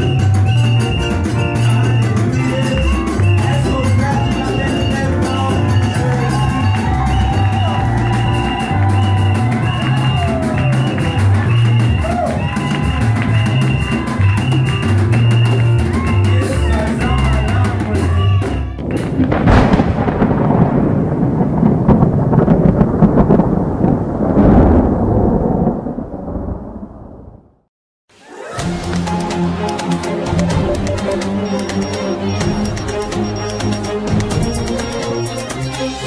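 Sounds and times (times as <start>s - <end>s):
live band dance music: 0.0s - 19.0s, 28.6s - 36.0s.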